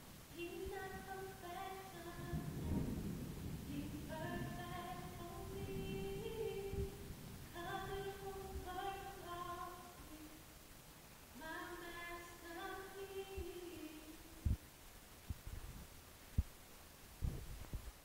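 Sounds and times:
woman singing a cappella: 0.3s - 10.5s, 11.4s - 14.5s
low thump: 2.4s - 4.6s.

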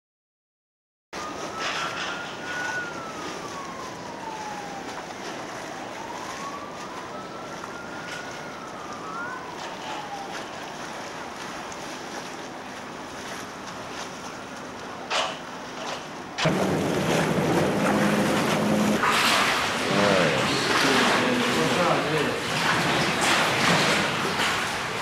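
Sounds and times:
siren wailing: 1.2s - 12.0s, 16.4s - 25.0s
water pouring into drainage pit: 1.3s - 15.0s, 16.4s - 25.0s.

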